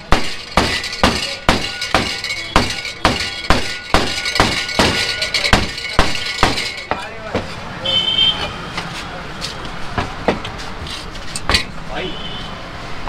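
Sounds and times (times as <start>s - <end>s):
metal utensil clanging on cookware: 0.3s - 7.1s.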